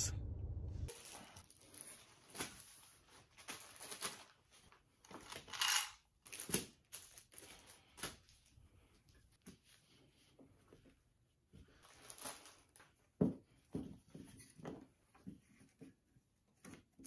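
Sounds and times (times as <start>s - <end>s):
plastic packaging rustling: 0.9s - 5.6s, 11.8s - 13.0s.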